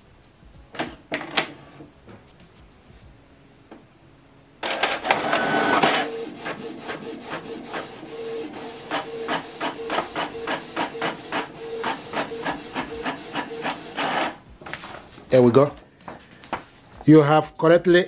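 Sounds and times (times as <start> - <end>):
printer paper feed whir: 4.6 - 15.0.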